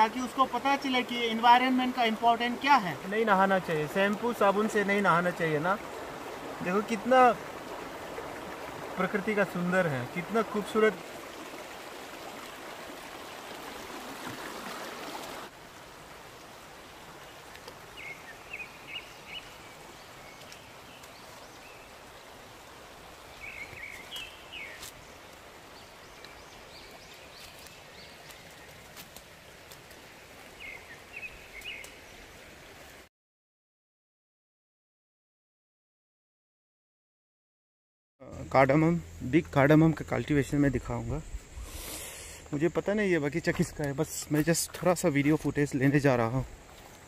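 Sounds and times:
forest background: 0.0 - 33.1, 38.2 - 47.0
stream rippling over stones: 0.0 - 33.1, 41.6 - 47.0
bird chirping: 18.0 - 21.9, 23.4 - 24.9.

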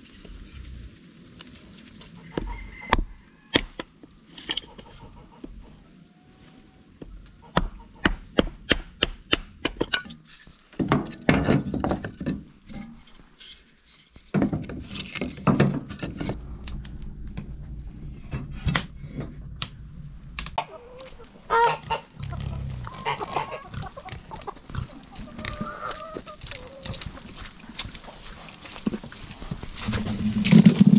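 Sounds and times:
chickens clucking: 4.6 - 8.2, 20.6 - 28.2
hatchet splitting wood: 7.5 - 10.2
geese honking: 20.6 - 27.0.

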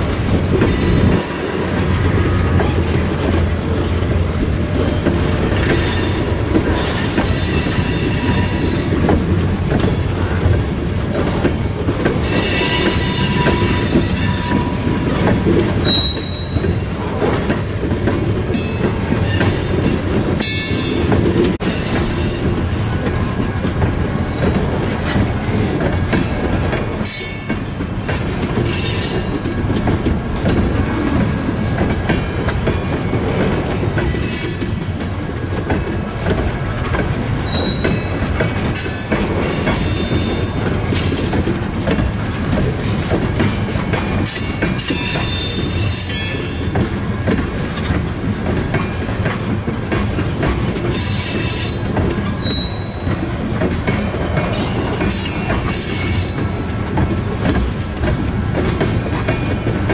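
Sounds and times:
train wheels rumbling: 0.0 - 59.9
high-pitched wheel squeal: 15.8 - 16.6, 37.4 - 38.1, 52.4 - 53.1.

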